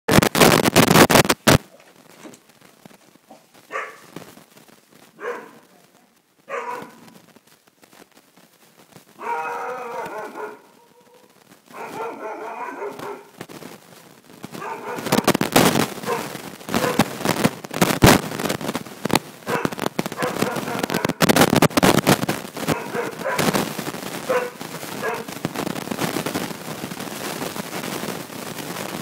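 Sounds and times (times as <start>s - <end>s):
loud crackling rustling noise: 0.0s - 29.0s
puppy howling barks: 3.7s - 4.1s, 5.2s - 5.7s, 6.5s - 7.1s, 9.2s - 13.4s, 14.6s - 15.3s, 16.0s - 17.1s, 19.5s - 21.2s, 22.7s - 23.5s, 24.3s - 25.3s.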